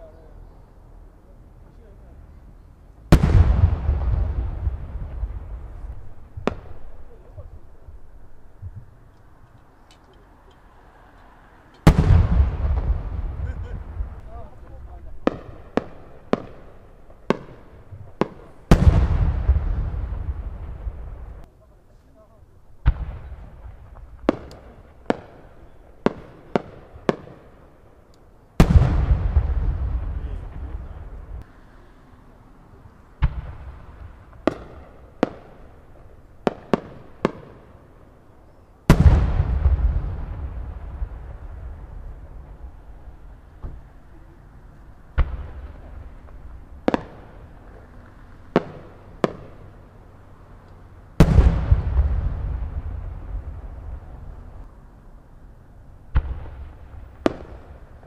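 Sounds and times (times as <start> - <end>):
firework boom echoing: 3.1 - 9.0, 11.8 - 21.5, 28.6 - 31.4, 38.9 - 44.0, 51.2 - 54.7
firework cracks: 3.1 - 9.4, 10.0 - 21.5, 22.7 - 31.6, 33.0 - 54.8, 56.0 - 58.0.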